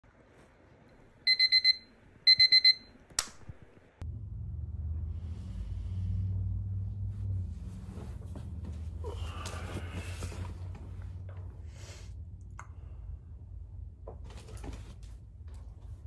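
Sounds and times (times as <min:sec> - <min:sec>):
alarm beeping: 0:01.3 - 0:02.9
steady low hum: 0:04.0 - 0:16.0.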